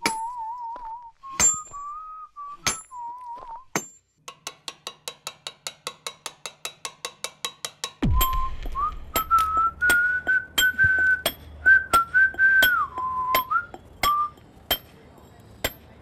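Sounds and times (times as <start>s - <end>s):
whistled melody: 0.0s - 3.8s, 8.0s - 14.4s
low hum: 8.0s - 14.7s.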